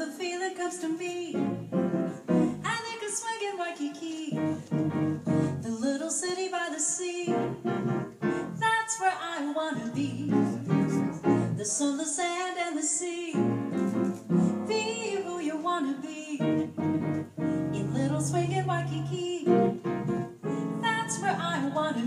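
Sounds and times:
woman singing: 0:00.0 - 0:01.6, 0:02.2 - 0:07.6, 0:08.4 - 0:22.0
grand piano: 0:00.0 - 0:22.0
upright double bass: 0:04.5 - 0:05.6, 0:10.0 - 0:11.6, 0:16.6 - 0:20.4.

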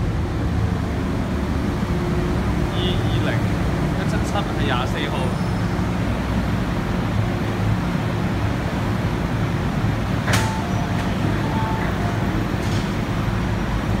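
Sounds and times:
train humming: 0:00.0 - 0:14.0
doors sliding open: 0:09.8 - 0:14.0.

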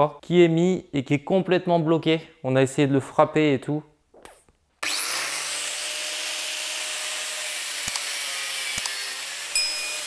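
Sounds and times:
angle grinder cutting: 0:04.8 - 0:10.0.

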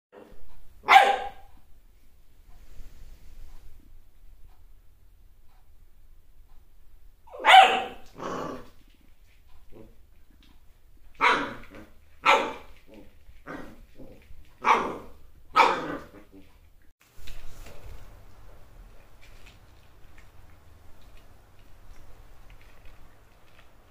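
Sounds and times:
puppy barking: 0:00.2 - 0:01.6, 0:07.3 - 0:08.7, 0:11.2 - 0:13.7, 0:14.5 - 0:16.5.

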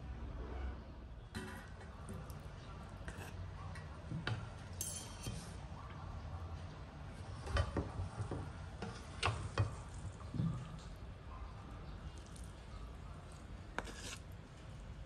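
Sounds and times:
fork clinking on metal plate: 0:04.8 - 0:05.5.

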